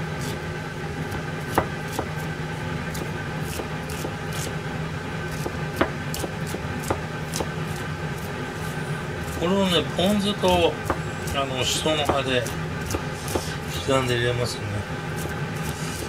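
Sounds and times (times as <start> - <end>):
knife tapping on cutting board: 12.0 - 12.3.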